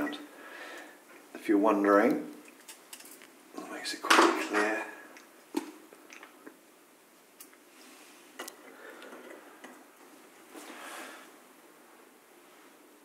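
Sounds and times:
soft rustling: 7.6s - 13.0s.

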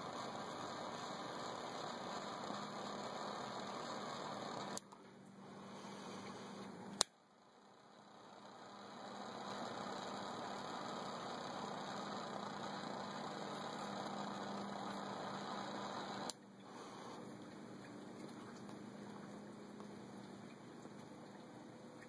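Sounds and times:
jet flame hissing: 0.0s - 17.3s
lighter ignition click: 7.0s - 7.2s.

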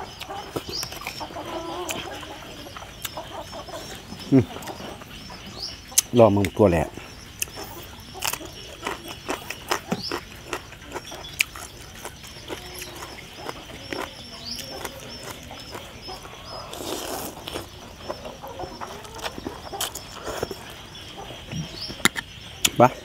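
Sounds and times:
moist chewing with crunches: 0.0s - 5.2s, 6.0s - 22.8s
chickens clucking: 0.0s - 23.0s
slurping noodles: 16.5s - 17.7s.

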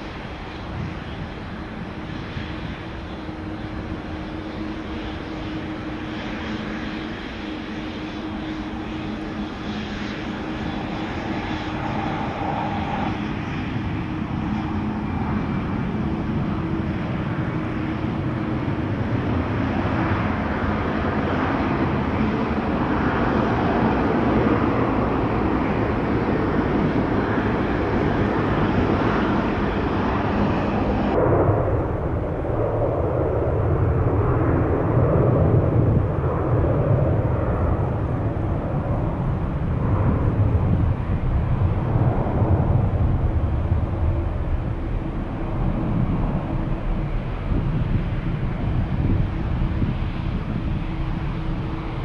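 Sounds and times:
jet engines roaring: 0.0s - 52.0s.

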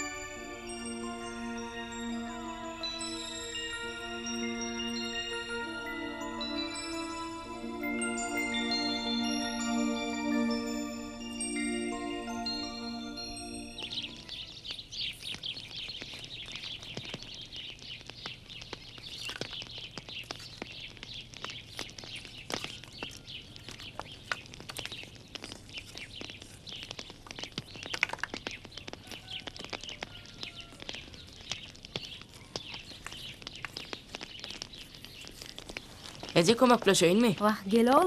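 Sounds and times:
small birds chirping: 0.0s - 38.0s.

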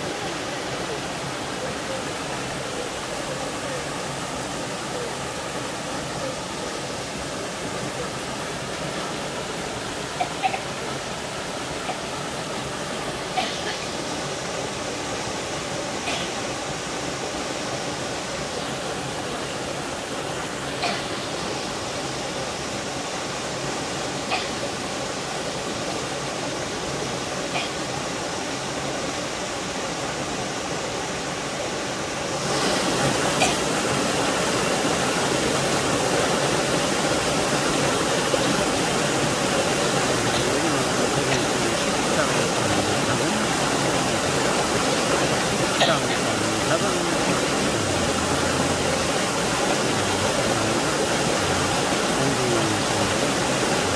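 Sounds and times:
waterfall splashing: 0.0s - 53.9s.

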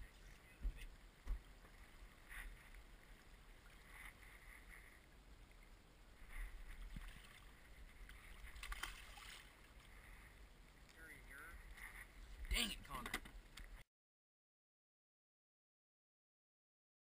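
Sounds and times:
fish splashing at surface: 8.3s - 9.6s.

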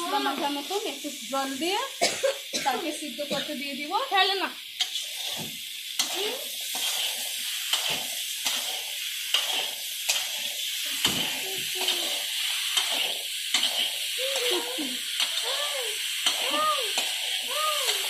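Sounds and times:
food frying in oil: 0.0s - 18.0s
metal spatula scraping a pan: 4.8s - 15.5s.

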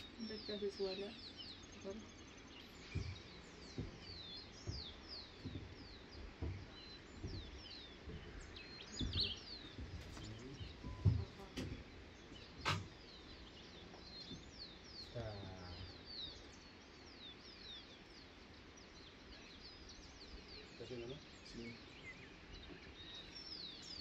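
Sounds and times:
soft low thumps: 0.0s - 16.2s
birds chirping: 0.0s - 24.0s
sharp click: 12.6s - 12.9s.

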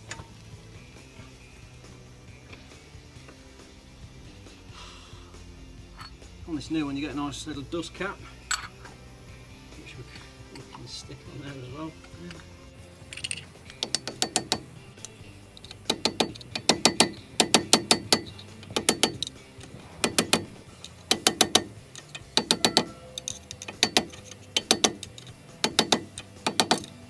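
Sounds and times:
screwdriver tapping metal cap: 8.5s - 8.8s, 13.1s - 19.4s, 20.0s - 27.0s.

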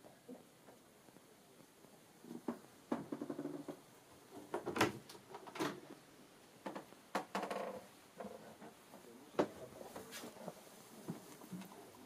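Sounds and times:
short creaks: 2.3s - 3.9s, 6.7s - 8.8s.

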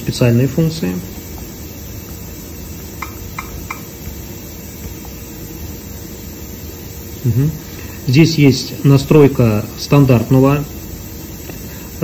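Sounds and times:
room tone hum and hiss: 0.0s - 12.0s.

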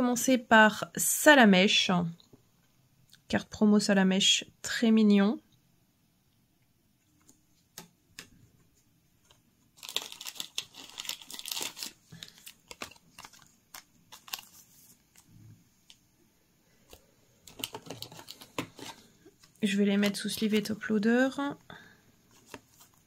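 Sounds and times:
plastic sleeve crinkling: 9.2s - 16.0s, 16.9s - 20.8s, 22.3s - 23.0s.

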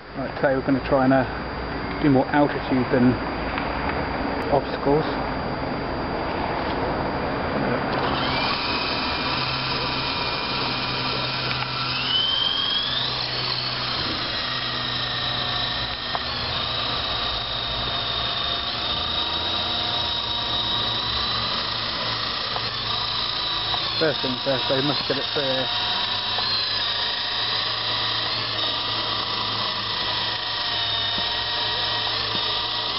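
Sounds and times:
toy helicopter motor whining: 7.9s - 32.9s.

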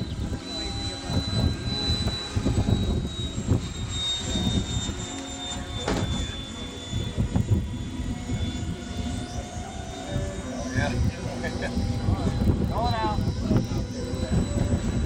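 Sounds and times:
gusty low rumble: 0.0s - 15.0s
model jet engine whine: 0.0s - 15.0s.

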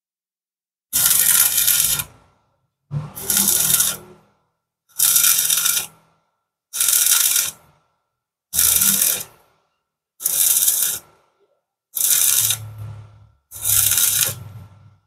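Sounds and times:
welding arc crackling: 1.0s - 2.1s, 3.2s - 4.1s, 5.0s - 5.9s, 6.8s - 7.6s, 8.6s - 9.4s, 10.2s - 11.0s, 12.0s - 12.8s, 13.6s - 14.7s.

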